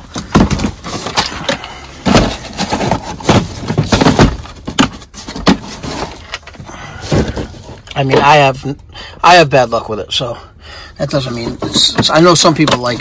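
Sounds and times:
plastic cases clunking: 0:00.0 - 0:08.6, 0:11.2 - 0:13.0.

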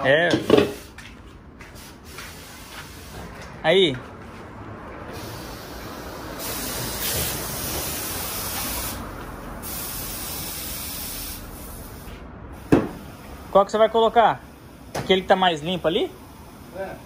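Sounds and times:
hissing spray bursts: 0:01.7 - 0:03.2, 0:05.1 - 0:17.0.

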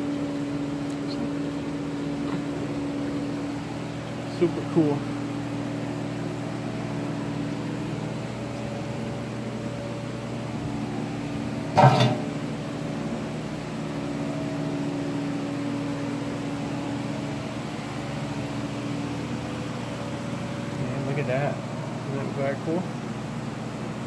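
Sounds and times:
aquarium pumps humming: 0:00.0 - 0:24.0
loud bump: 0:11.8 - 0:12.3.

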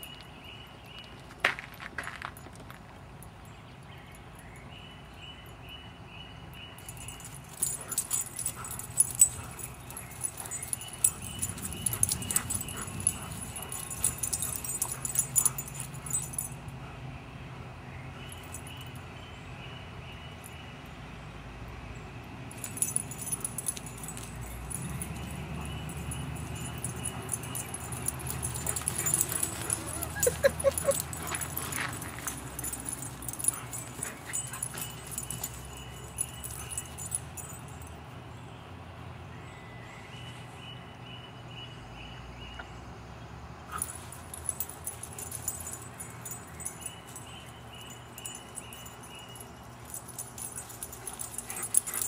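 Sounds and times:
dogs whimpering and yipping: 0:07.2 - 0:16.6, 0:22.7 - 0:37.5, 0:49.8 - 0:52.0.

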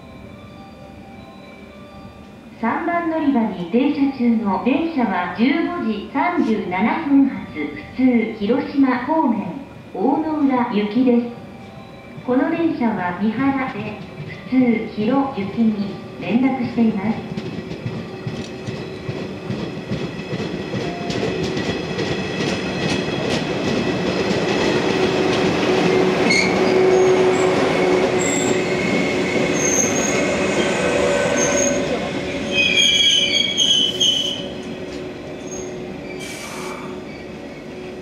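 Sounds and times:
electric train running past: 0:11.3 - 0:38.0
high wheel squeal: 0:28.2 - 0:34.6.

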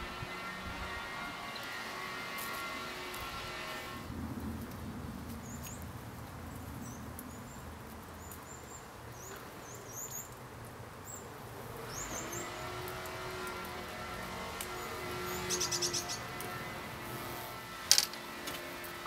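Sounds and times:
small birds chirping: 0:05.3 - 0:16.8.

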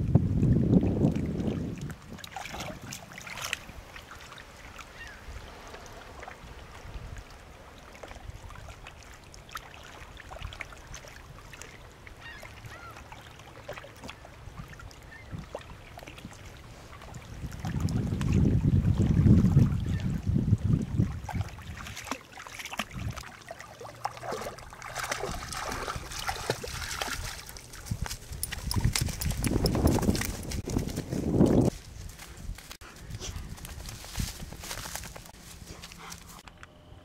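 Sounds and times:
wind buffeting microphone: 0:00.0 - 0:03.9, 0:16.6 - 0:22.0, 0:22.8 - 0:23.2, 0:25.0 - 0:36.4.

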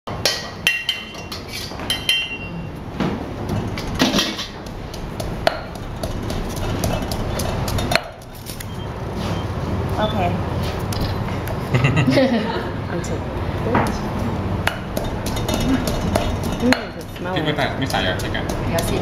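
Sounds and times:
pestle pounding in stone mortar: 0:03.9 - 0:08.4, 0:14.7 - 0:19.0.

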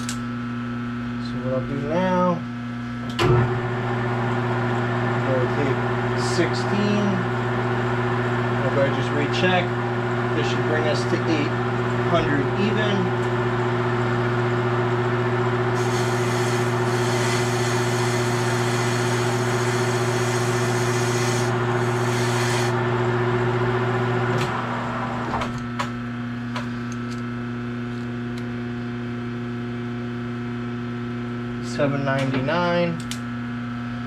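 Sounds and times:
lathe running hum: 0:03.4 - 0:25.3
lathe tool cutting hiss: 0:15.8 - 0:22.8.

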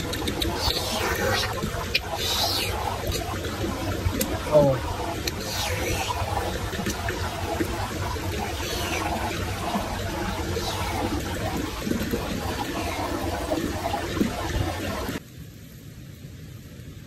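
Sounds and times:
stream water rushing over rocks: 0:00.0 - 0:15.2.

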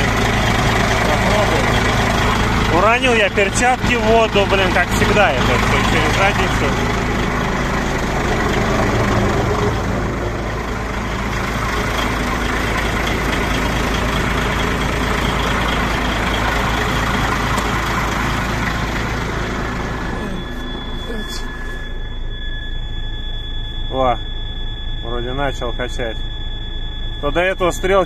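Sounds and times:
diesel truck engine idling: 0:00.0 - 0:28.0.

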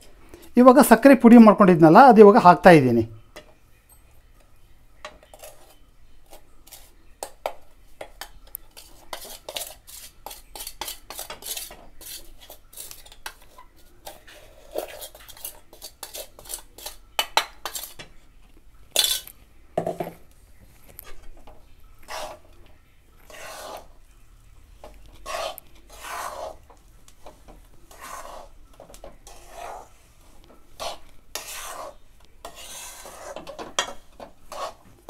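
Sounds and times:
spoon clinking on steel container: 0:18.9 - 0:19.3.

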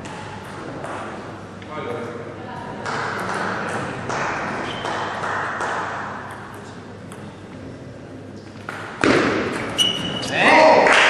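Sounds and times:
table tennis ball bouncing: 0:00.0 - 0:01.3, 0:02.8 - 0:07.6.

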